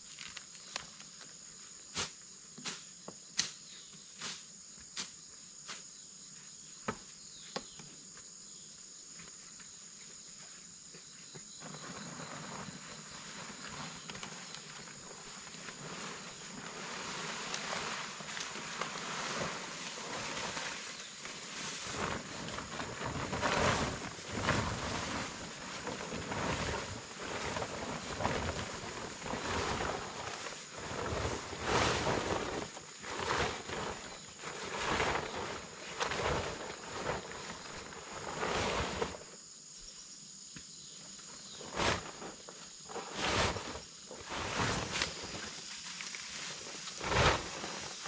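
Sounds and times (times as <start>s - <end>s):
insects droning: 0.0s - 48.0s
plastic tarp crinkling: 11.7s - 39.2s, 43.1s - 48.0s.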